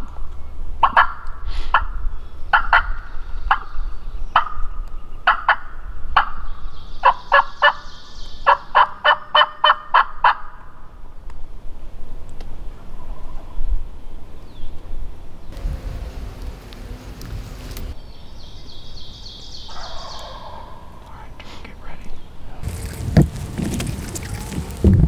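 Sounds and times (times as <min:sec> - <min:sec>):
turkey yelping: 0:07.0 - 0:07.8, 0:08.5 - 0:10.6, 0:19.7 - 0:21.1.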